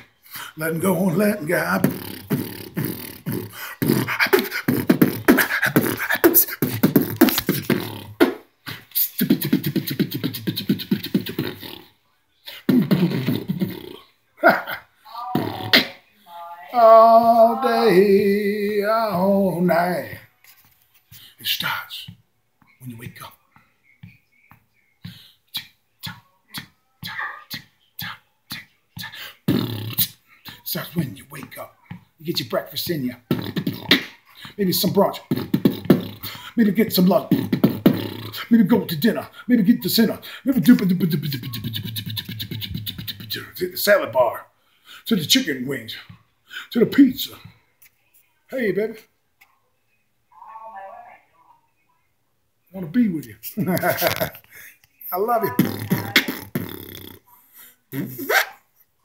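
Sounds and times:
man beatboxing: 0.0 - 11.9, 12.5 - 16.0, 25.1 - 31.6, 32.3 - 43.9, 53.6 - 54.4, 55.2 - 57.2, 57.9 - 58.6.

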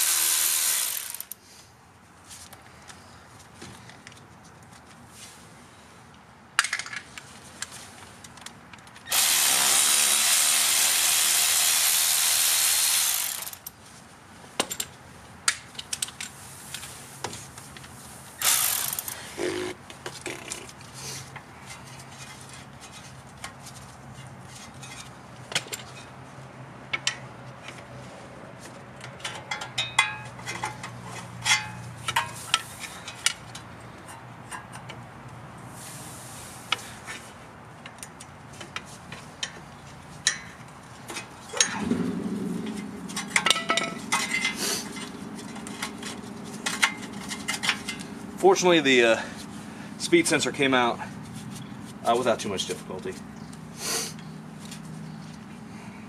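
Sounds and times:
hand ratchet clicking: 0.0 - 1.4, 18.4 - 19.2
loud steady hiss: 9.1 - 13.6
metal tools clinking: 29.2 - 33.4, 42.7 - 48.1.

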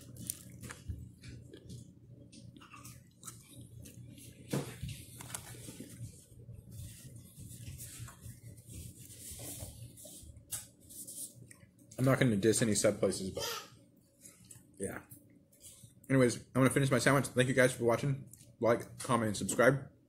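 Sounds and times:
person chewing food: 0.0 - 6.4
steady low hum: 0.0 - 20.0.

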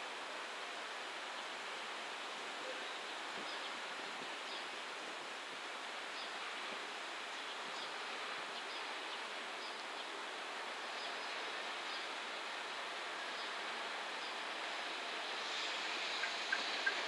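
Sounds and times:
distant freight train rolling: 12.9 - 17.0.

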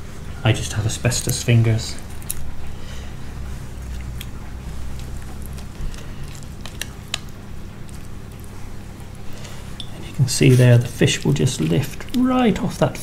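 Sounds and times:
wet handling of fish: 0.0 - 12.6
low steady hum: 0.0 - 13.0.

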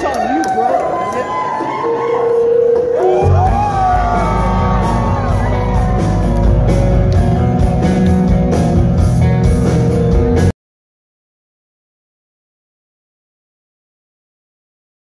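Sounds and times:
live rock band playing: 1.8 - 10.5.

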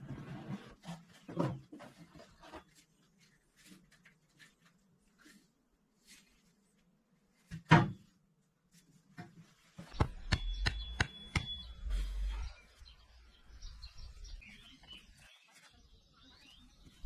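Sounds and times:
soft bird chirps: 9.9 - 17.0.

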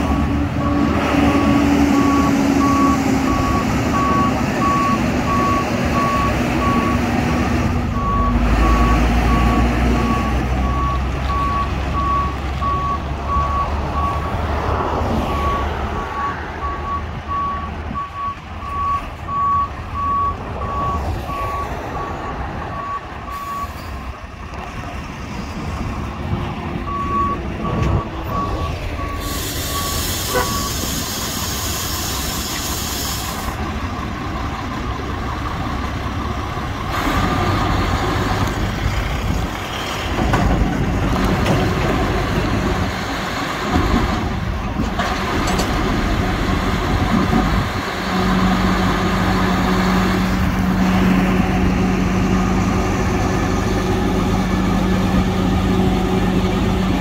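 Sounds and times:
diesel engine running: 0.0 - 57.0
reversing alarm beeps: 1.9 - 7.0, 8.0 - 14.2, 15.3 - 22.1, 22.7 - 23.9, 26.9 - 31.0
loud air hiss: 29.2 - 33.6.

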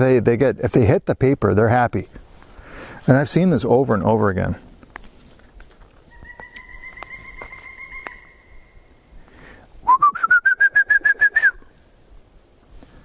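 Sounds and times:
bird calling: 6.0 - 11.8.

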